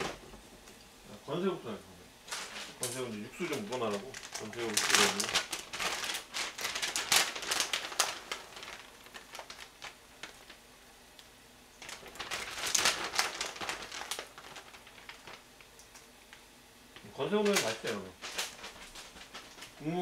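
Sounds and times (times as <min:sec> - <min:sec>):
dried shrimp crinkling: 0:02.3 - 0:10.6, 0:11.8 - 0:16.1, 0:17.0 - 0:20.0.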